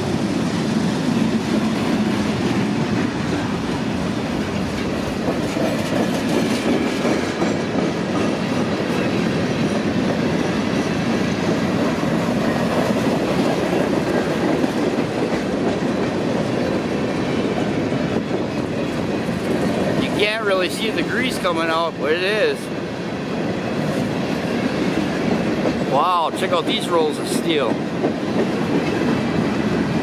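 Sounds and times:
train cars rolling on rails: 0.0s - 30.0s.

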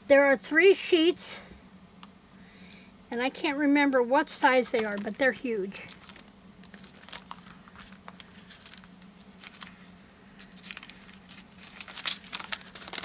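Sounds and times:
paper rustling and crinkling: 4.5s - 13.0s.

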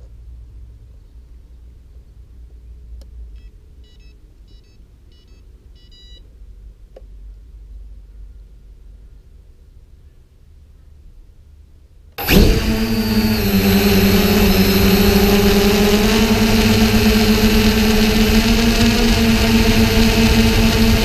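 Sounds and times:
drone motors and propellers humming: 12.2s - 21.0s.

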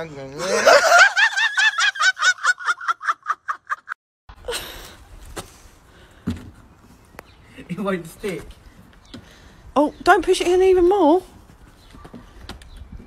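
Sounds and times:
high-pitched cackling laughter: 0.4s - 4.0s.

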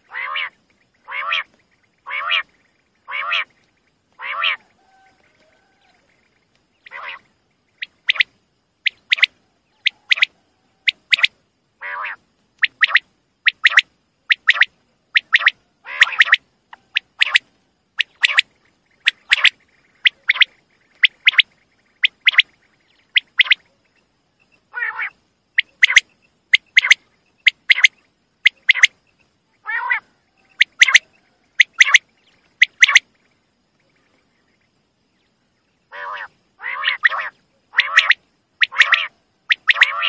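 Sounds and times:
quail calling high notes: 0.0s - 3.5s, 4.1s - 6.1s, 6.8s - 8.3s, 8.9s - 22.5s, 24.7s - 29.0s, 29.6s - 33.1s, 35.9s - 40.0s
harsh lower bird calls: 0.0s - 40.0s.

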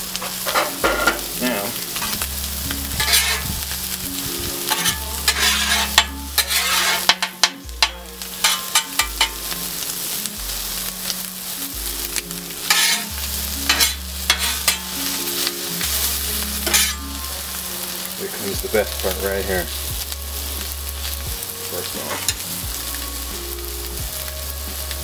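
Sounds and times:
food sizzling on griddle: 0.0s - 25.0s
metal spatulas scraping griddle: 0.1s - 9.6s, 12.6s - 19.8s, 21.0s - 22.6s.

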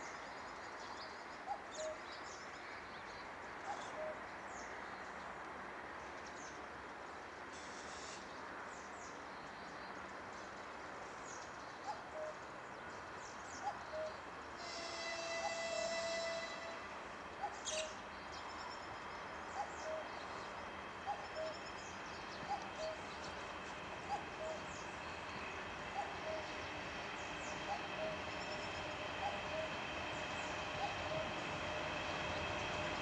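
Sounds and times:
steady outdoor hiss: 0.0s - 33.0s
distant locomotive horn: 14.6s - 17.1s, 25.6s - 33.0s
birds chirping: 19.5s - 33.0s.

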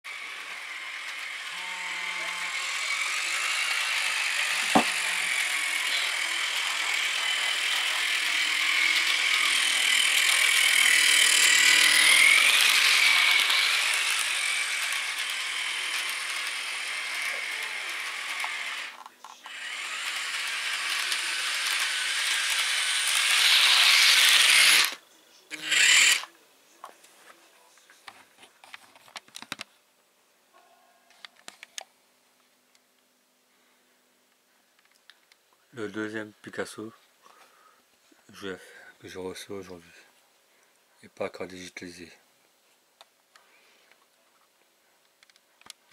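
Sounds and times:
model train motor whining: 0.1s - 26.3s.

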